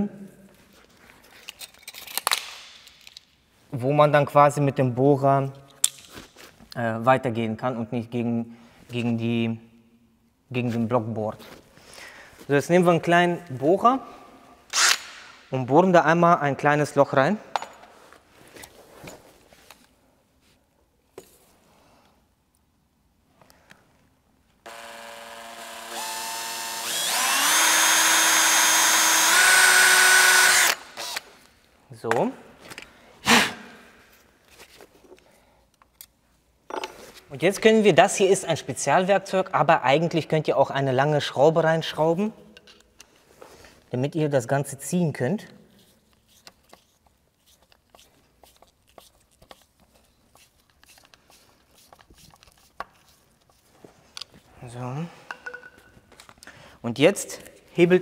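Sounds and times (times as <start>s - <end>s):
cordless drill whining: 24.7s - 31.3s
screw clicking and scraping: 46.1s - 53.6s.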